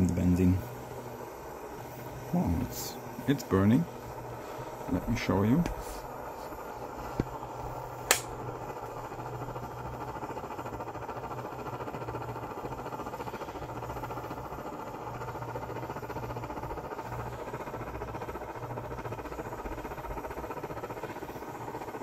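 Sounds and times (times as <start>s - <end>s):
stove burner hissing: 0.0s - 22.0s
sharp click: 8.1s - 8.3s.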